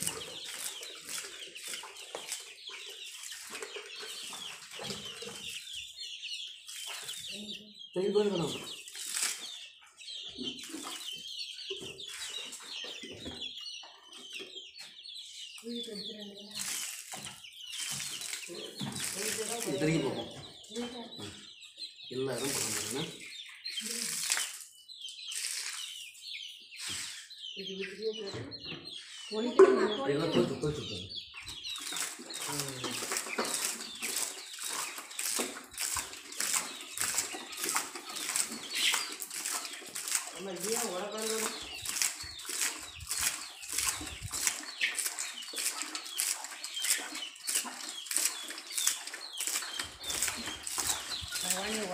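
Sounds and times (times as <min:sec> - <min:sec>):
liquid splashing on dung: 0:00.0 - 0:05.5, 0:08.8 - 0:09.5, 0:16.5 - 0:20.3, 0:22.3 - 0:23.2, 0:23.8 - 0:24.7, 0:25.3 - 0:26.0, 0:31.8 - 0:51.9
chickens clucking: 0:00.0 - 0:51.9.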